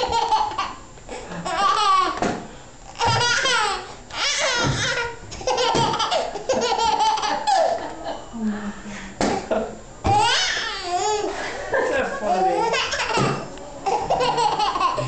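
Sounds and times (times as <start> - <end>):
baby laughing: 0.0 - 0.8, 1.4 - 2.2, 3.0 - 8.0, 10.1 - 15.0.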